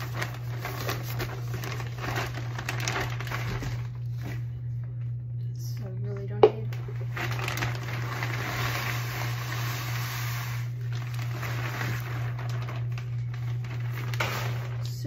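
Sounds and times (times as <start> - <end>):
pellets pouring rattle: 0.0 - 3.9, 7.1 - 15.0.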